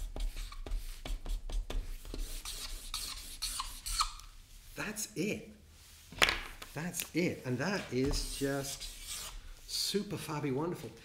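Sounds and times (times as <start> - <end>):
marker pen scratching on paper: 0.0 - 4.2
marker pen scribbling: 0.0 - 4.2.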